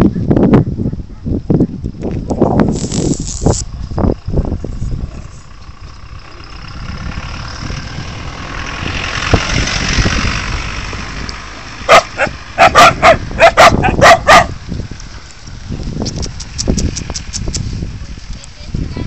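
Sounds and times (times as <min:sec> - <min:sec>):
dogs barking: 0:11.8 - 0:14.6.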